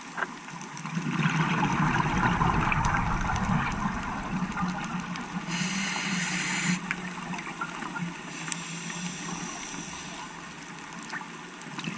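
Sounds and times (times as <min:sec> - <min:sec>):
underwater noise: 0:00.0 - 0:11.9
low steady hum: 0:01.4 - 0:11.1
diving regulator hiss: 0:05.3 - 0:07.3, 0:08.2 - 0:10.7.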